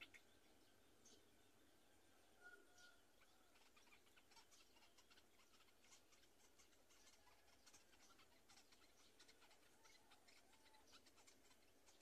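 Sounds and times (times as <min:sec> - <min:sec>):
faint ticks and rustles in nest: 0:02.5 - 0:12.0.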